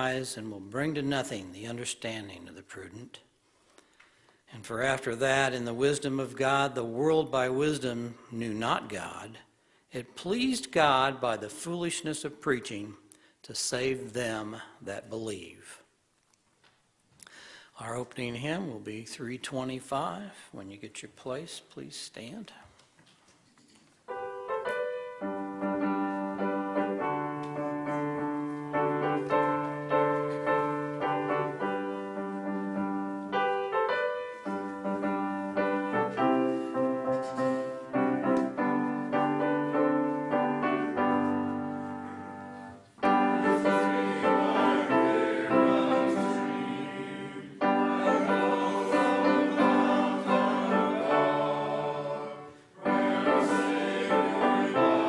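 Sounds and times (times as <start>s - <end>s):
congregation singing a hymn: 0.0s - 1.4s, 24.2s - 55.0s
grand piano playing: 24.1s - 55.0s.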